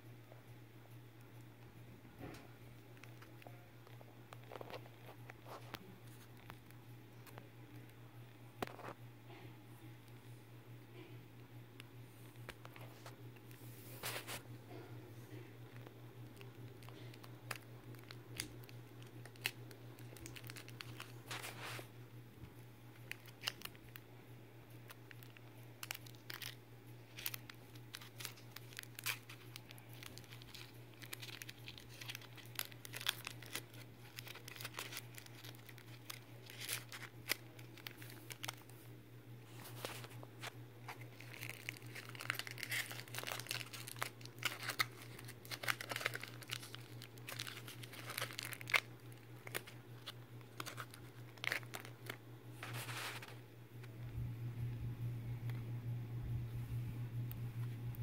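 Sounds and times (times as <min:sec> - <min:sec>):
steady low hum: 0:00.0 - 0:58.0
foil wrapper crinkling: 0:02.7 - 0:08.0, 0:12.2 - 0:14.5, 0:15.3 - 0:53.9.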